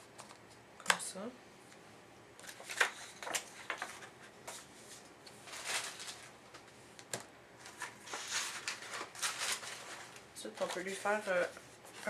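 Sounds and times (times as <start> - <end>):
paper rustling: 2.4 - 6.8, 7.6 - 12.0.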